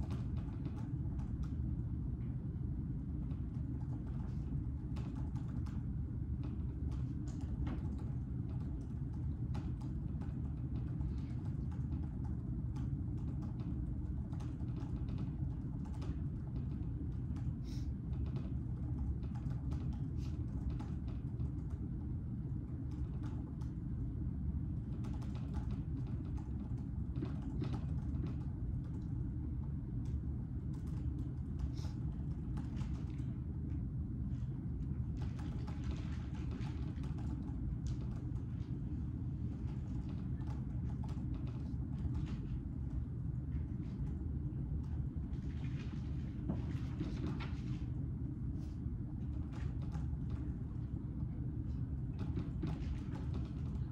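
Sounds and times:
low room hum: 0.0 - 53.9
laptop keyboard typing: 3.5 - 17.5, 18.1 - 21.8, 22.8 - 23.8, 24.9 - 29.2, 30.0 - 33.3, 35.2 - 38.5, 39.6 - 42.4.

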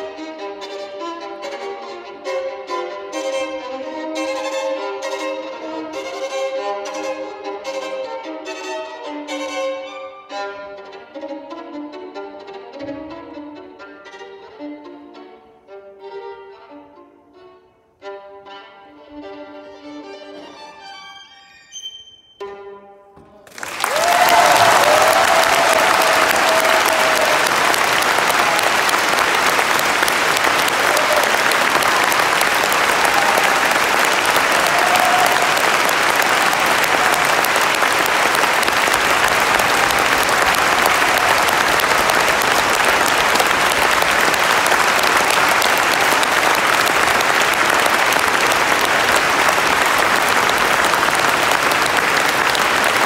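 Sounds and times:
audience applauding: 23.4 - 53.0.

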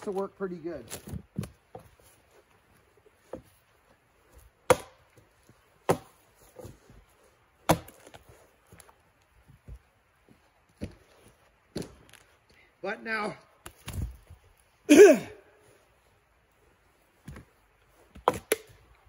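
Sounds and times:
axe chopping log: 4.6 - 5.2, 5.8 - 6.7, 7.6 - 8.3, 18.1 - 18.8.

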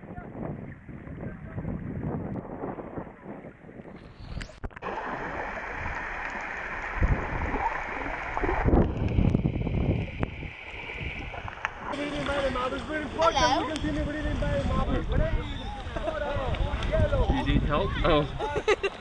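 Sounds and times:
muffled underwater rushing: 0.0 - 17.3
water sloshing and gurgling: 0.3 - 13.6.

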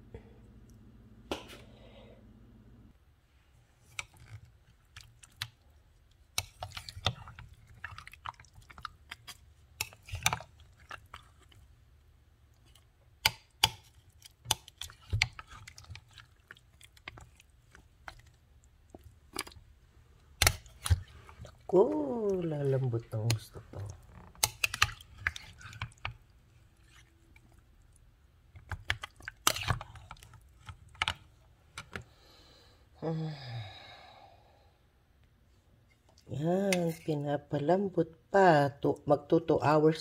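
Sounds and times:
wet squelches: 3.8 - 11.8, 12.4 - 31.9.

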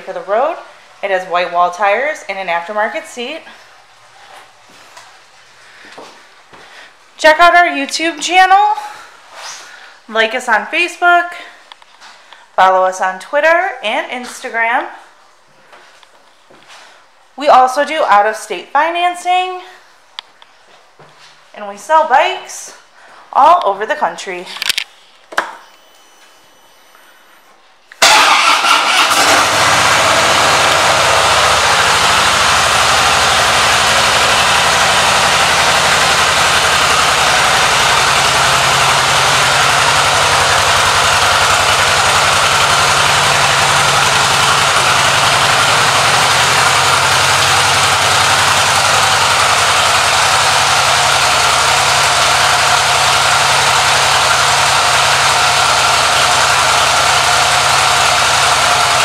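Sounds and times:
motorcycle engine idling: 28.1 - 59.0.

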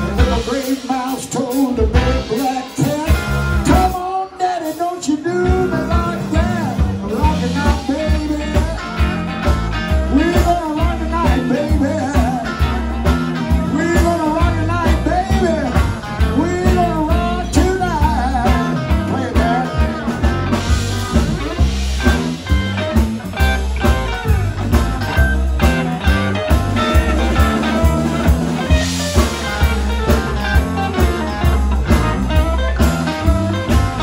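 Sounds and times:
blues band playing: 0.0 - 34.0
electric guitar solo: 18.7 - 34.0.

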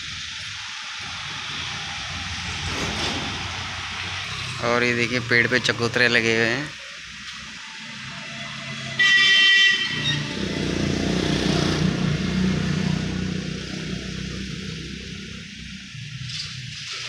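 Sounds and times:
road vehicle passing: 1.0 - 16.2
vehicle horn honking: 8.7 - 10.6.

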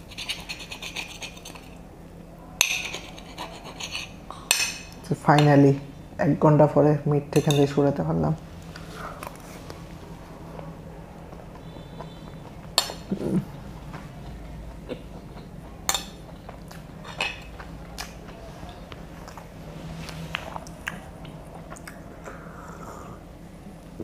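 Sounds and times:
low hum of a voice: 13.0 - 15.9.

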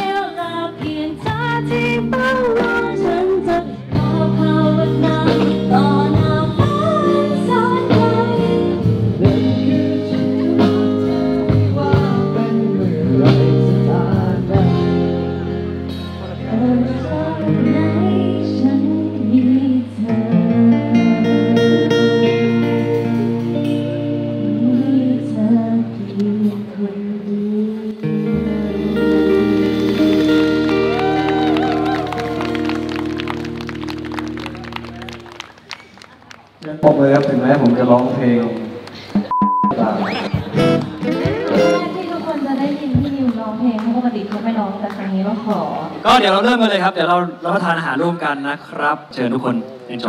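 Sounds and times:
people singing into microphones: 0.0 - 15.4, 16.3 - 28.0
instrumental music with plucked notes: 39.8 - 42.4.

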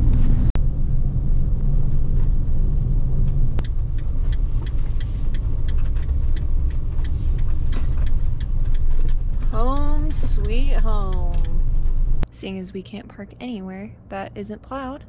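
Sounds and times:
van engine and road rumble: 0.0 - 15.0
light irregular ticks: 3.6 - 9.6.

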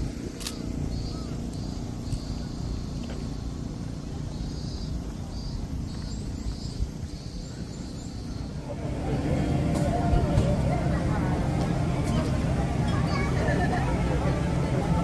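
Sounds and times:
crowd chatter: 0.0 - 15.0
steady low rumble: 0.0 - 15.0.

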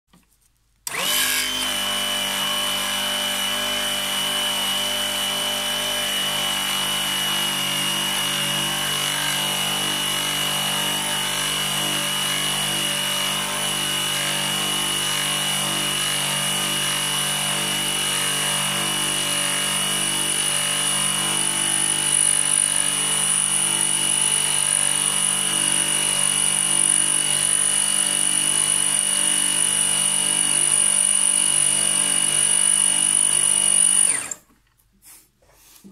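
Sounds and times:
metal lathe motor whine: 0.9 - 4.0, 22.0 - 34.4
lathe tool turning metal bar: 7.6 - 34.4.

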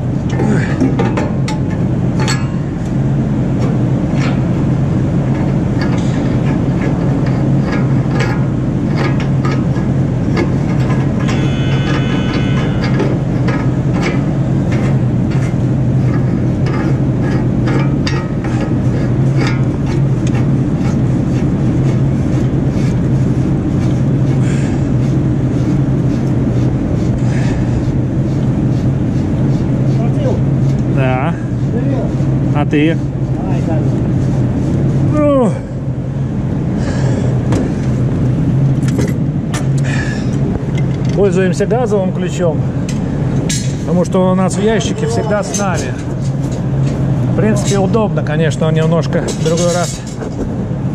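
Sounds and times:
low mechanical drone: 0.0 - 50.9.

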